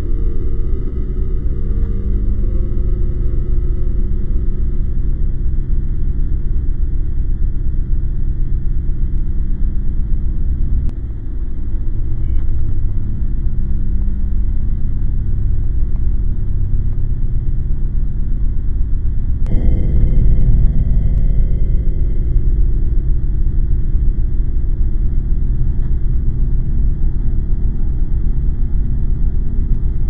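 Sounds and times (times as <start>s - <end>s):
low rumbling drone: 0.0s - 30.0s.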